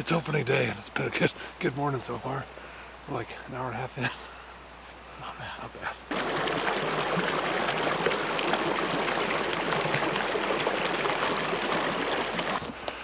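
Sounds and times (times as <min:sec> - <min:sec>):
creek running over rocks: 0:00.0 - 0:04.0, 0:06.0 - 0:13.0.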